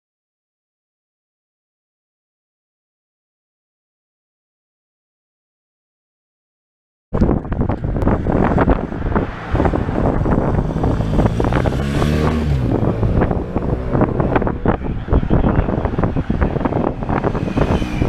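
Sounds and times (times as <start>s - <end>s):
wind buffeting microphone: 7.2s - 18.0s
motorcycle passing by: 8.1s - 18.0s.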